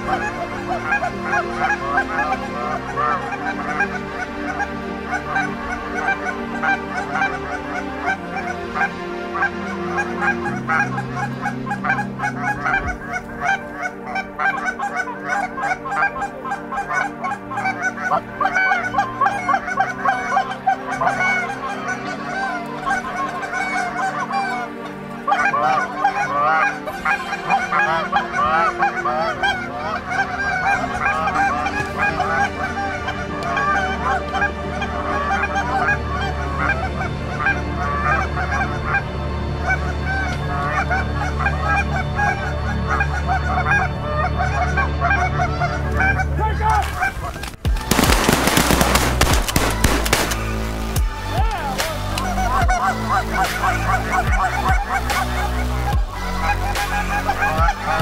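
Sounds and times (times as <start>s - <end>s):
geese honking and yelping: 0.0s - 58.0s.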